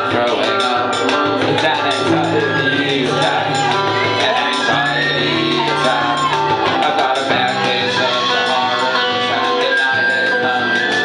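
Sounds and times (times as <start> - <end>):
indie rock band playing: 0.0 - 11.0
person singing: 0.0 - 11.0.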